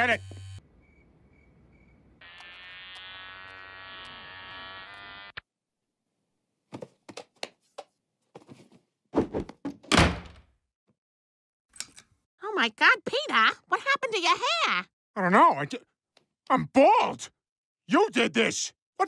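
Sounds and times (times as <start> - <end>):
electric hair clipper buzzing: 0.1 - 0.6, 2.2 - 5.4.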